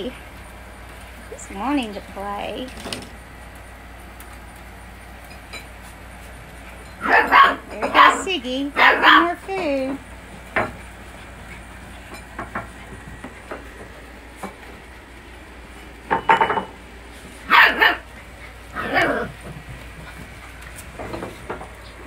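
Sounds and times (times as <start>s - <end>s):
puppies barking: 6.4s - 14.6s, 17.4s - 22.0s.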